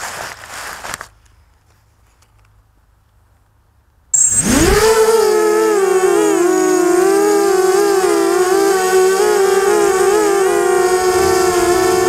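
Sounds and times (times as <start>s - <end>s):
crackling rustle: 0.0s - 2.6s
drone motors humming: 4.2s - 12.0s.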